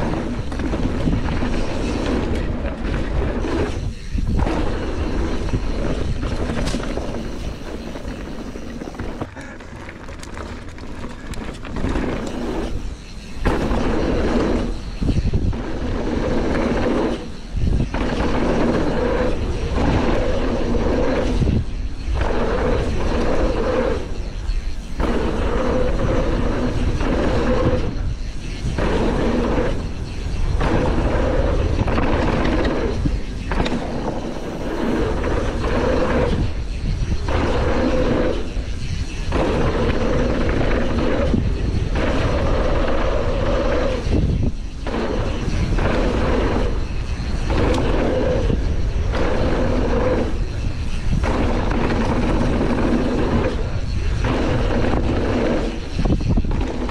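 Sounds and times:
bike rattling: 0.0 - 56.9
tyres rolling on dirt: 0.0 - 56.9
wind rushing over microphone: 0.0 - 56.9.

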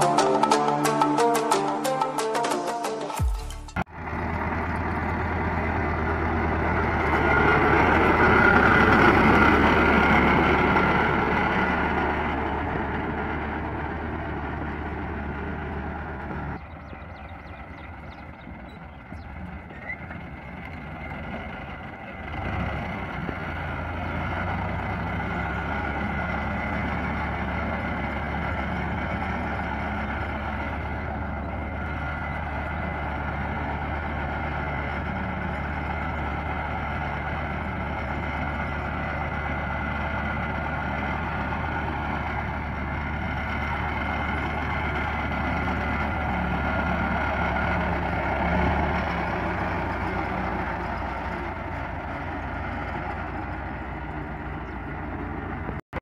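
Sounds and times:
tractor diesel engine running: 0.0 - 55.9.

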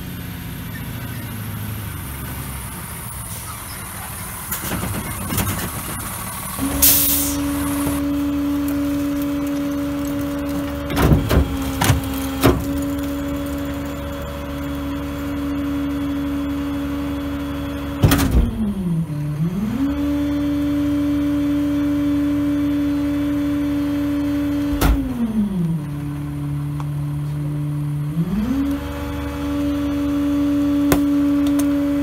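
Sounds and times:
garbage truck engine drone: 0.0 - 32.0
hydraulic packer clanks: 3.5 - 14.0.

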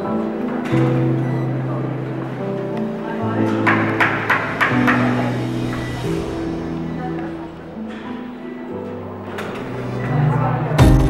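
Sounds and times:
background music with bass line: 10.8 - 11.0.

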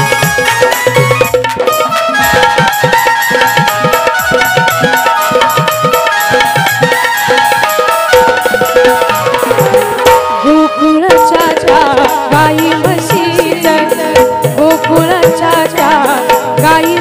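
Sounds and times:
wavering sliding melody line: 0.0 - 11.9
held melody notes: 0.0 - 13.6
hand-drum strokes: 0.0 - 17.0.

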